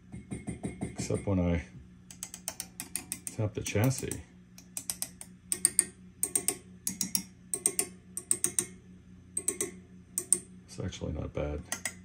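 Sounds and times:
amp low hum: 0.0 - 12.0
rod tapping on amp tubes: 2.1 - 8.8, 9.4 - 10.5, 11.7 - 12.0.

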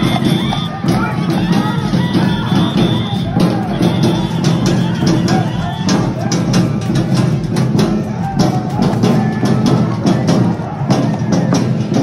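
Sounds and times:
rapid festival drumming: 0.0 - 12.0.

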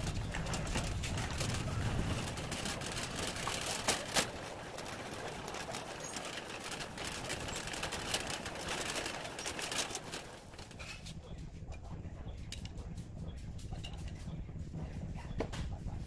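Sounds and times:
wire basket rattling: 0.0 - 11.1
shopping cart wheels rolling: 0.0 - 14.3.

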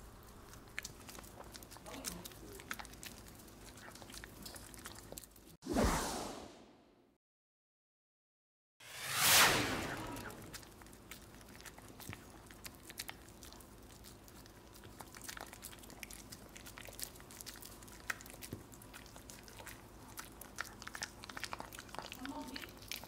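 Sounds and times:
dog chewing: 0.0 - 5.6, 10.2 - 23.0.

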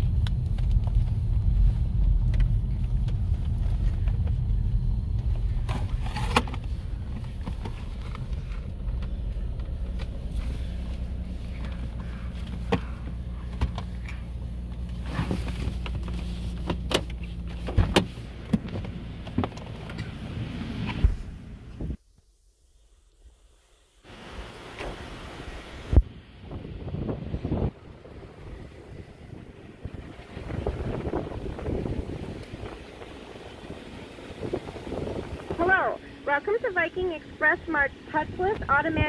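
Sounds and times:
car engine and tyre rumble: 0.0 - 22.0, 24.0 - 39.0.

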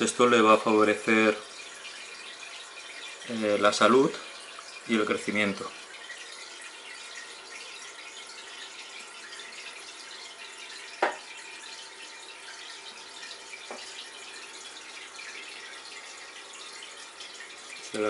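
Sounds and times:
aquarium filter water trickling: 0.0 - 18.0
sharp tap: 11.0 - 11.2.

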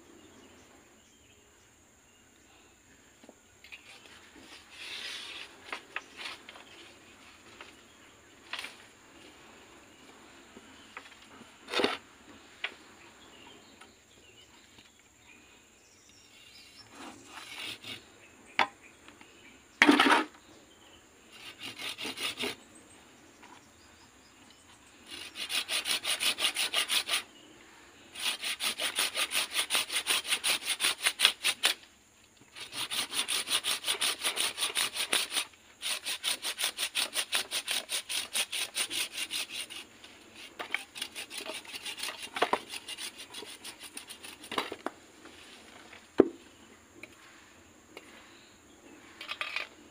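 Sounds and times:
hand saw cutting wood: 16.8 - 18.1, 21.3 - 22.6, 25.0 - 27.3, 28.1 - 31.8, 32.5 - 44.9.

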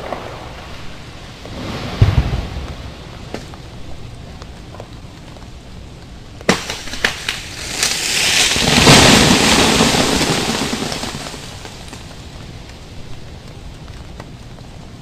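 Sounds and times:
freezing rain hiss: 0.0 - 15.0
tree limb cracking and crashing: 6.4 - 12.8.

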